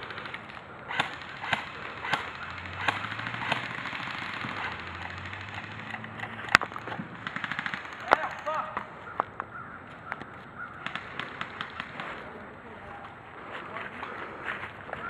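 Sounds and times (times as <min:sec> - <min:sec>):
airsoft gun shots: 0:00.9 - 0:06.2.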